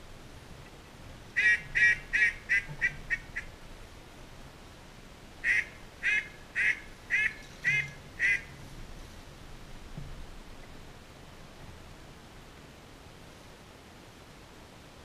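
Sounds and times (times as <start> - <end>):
duck call quacks: 1.4 - 3.5, 5.4 - 8.5.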